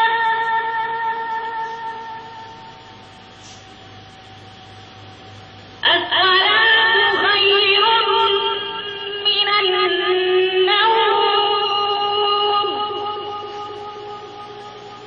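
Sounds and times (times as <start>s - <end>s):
call to prayer from small speaker: 5.8s - 15.0s.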